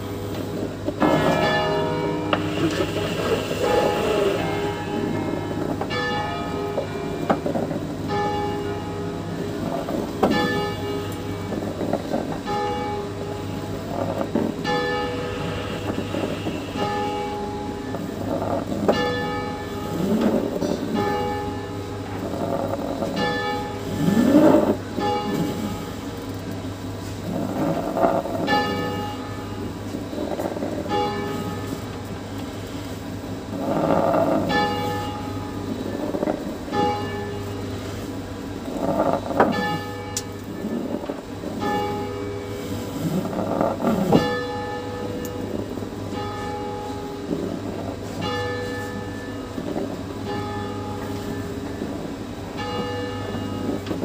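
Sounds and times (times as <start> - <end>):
church bells ringing: 0.0 - 54.0.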